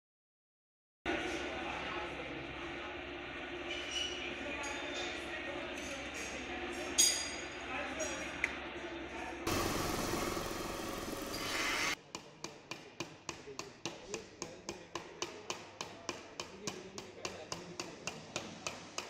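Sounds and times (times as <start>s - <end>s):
drill press drilling metal: 9.5s - 12.0s
hammer tapping metal: 12.2s - 19.0s.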